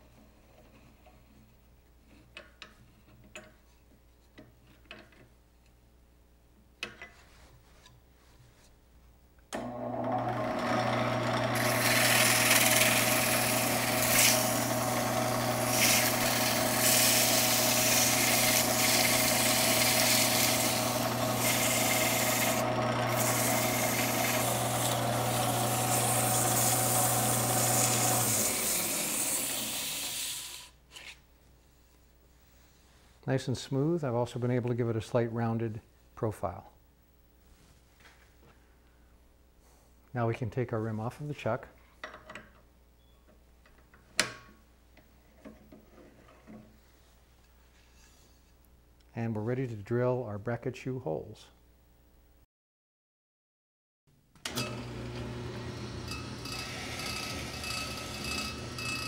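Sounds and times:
wood lathe motor humming: 0:09.6 - 0:30.7, 0:54.5 - 0:59.0
sanding rubbing spinning wood: 0:11.5 - 0:30.3, 0:56.2 - 0:59.0.

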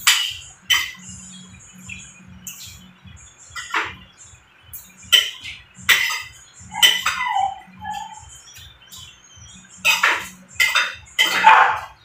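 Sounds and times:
wavering chirp-like squeak: 0:05.0 - 0:12.0
cutlery scraping ceramic plate: 0:09.8 - 0:11.9.

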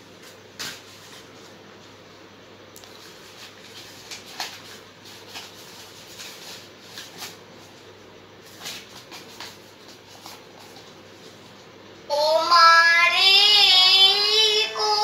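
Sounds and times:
paper crinkling and rustling: 0:00.1 - 0:01.9, 0:02.8 - 0:11.6.

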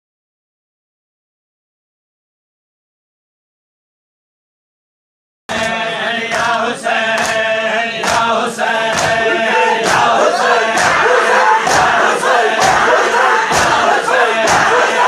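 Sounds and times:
men chanting together: 0:05.5 - 0:15.0.

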